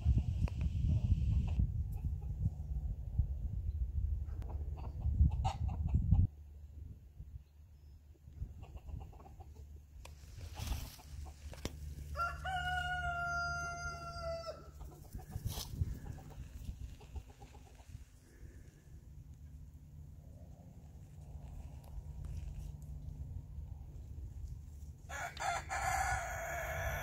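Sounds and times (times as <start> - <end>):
rooster crowing: 12.1 - 14.7, 25.1 - 27.0.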